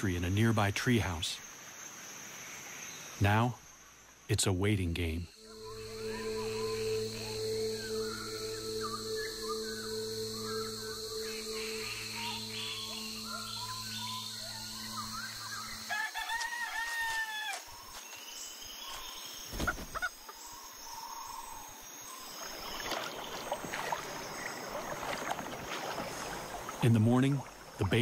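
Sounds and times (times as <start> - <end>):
rooster crowing: 15.8 - 17.6
canoe paddle splashing water: 22.3 - 27.9.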